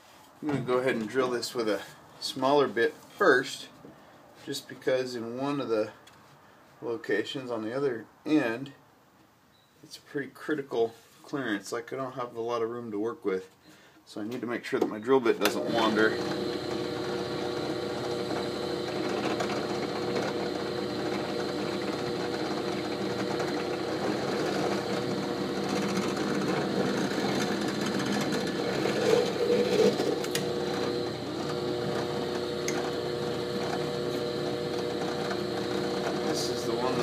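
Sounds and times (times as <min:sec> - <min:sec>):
drill press drilling into wood: 0:15.4 - 0:37.0.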